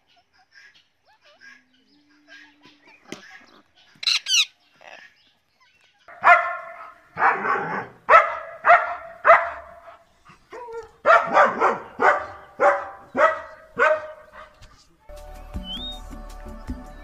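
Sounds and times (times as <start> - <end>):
dog barking: 6.1 - 10.0, 10.6 - 14.6.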